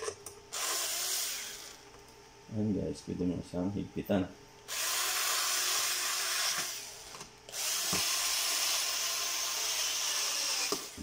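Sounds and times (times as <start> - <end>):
cordless screwdriver motor running: 7.5 - 11.0.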